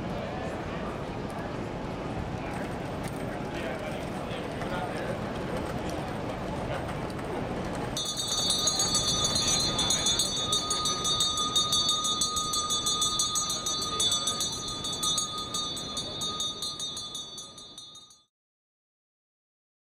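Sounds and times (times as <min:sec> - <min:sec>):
murmur of street crowd: 0:00.0 - 0:18.0
hand bell ringing: 0:08.0 - 0:18.3.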